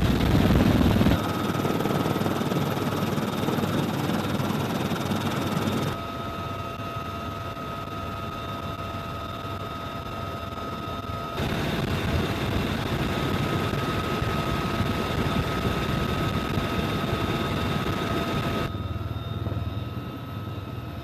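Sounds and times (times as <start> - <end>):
helicopter turbine and rotor noise: 0.0 - 21.0.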